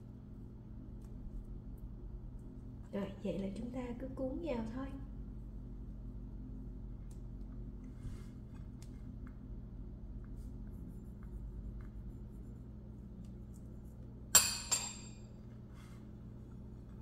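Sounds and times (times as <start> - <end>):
metal spoon clinking against bowl: 14.3 - 15.2.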